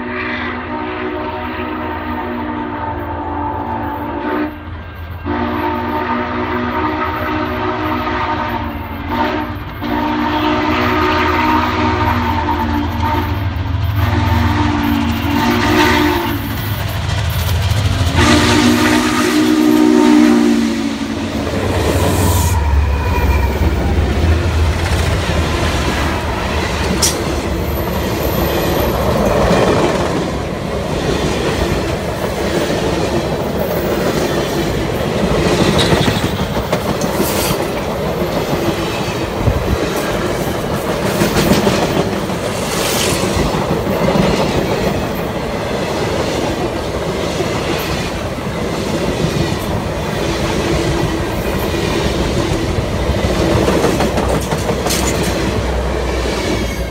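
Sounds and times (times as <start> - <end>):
steam locomotive chime whistle: 0.0 - 16.8, 18.1 - 21.3, 21.9 - 23.9
steam engine rumble: 9.0 - 56.9
train wheels clicking over rail joints: 16.3 - 18.3, 23.4 - 56.9.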